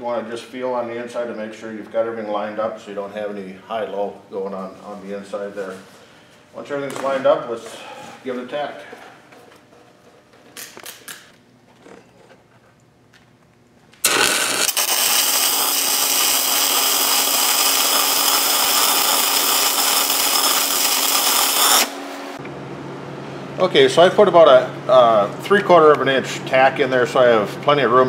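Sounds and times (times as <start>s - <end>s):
welding arc sizzling: 14.0s - 22.4s.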